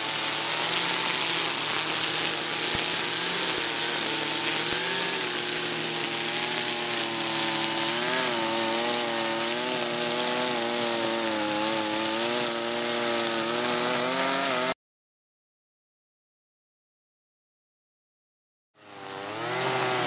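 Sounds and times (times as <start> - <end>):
brushcutter engine cutting grass: 0.0 - 14.8, 18.8 - 20.0.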